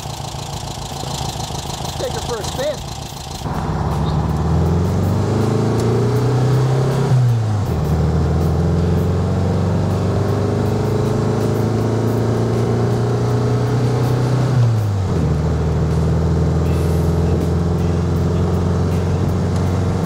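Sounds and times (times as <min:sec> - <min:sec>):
car engine accelerating: 0:00.0 - 0:20.0.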